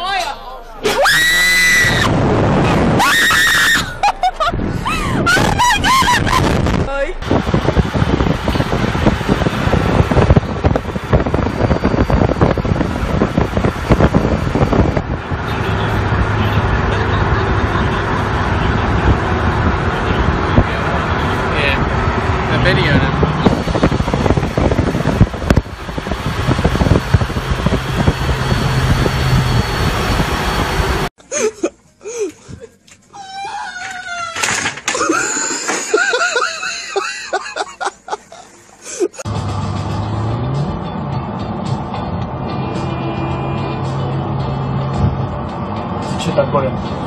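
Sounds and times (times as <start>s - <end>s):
low engine hum: 0.0s - 31.1s, 39.2s - 47.0s
highway road noise: 0.0s - 34.2s, 34.8s - 47.0s
wind buffeting microphone: 4.4s - 16.3s, 18.9s - 31.1s.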